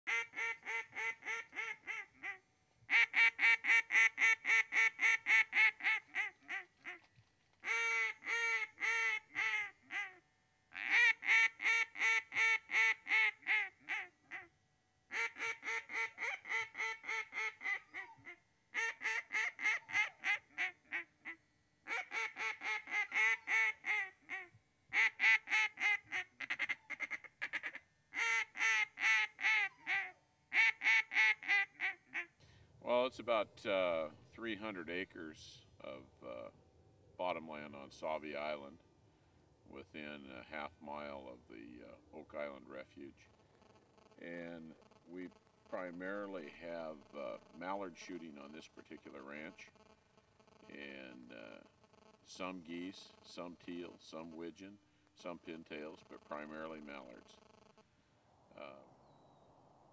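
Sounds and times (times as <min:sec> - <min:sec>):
ducks quacking: 0:00.1 - 0:10.1, 0:15.1 - 0:32.3.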